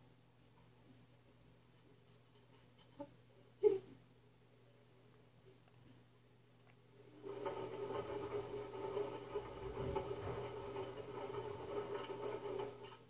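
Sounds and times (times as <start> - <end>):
washing machine running: 7.0 - 13.0.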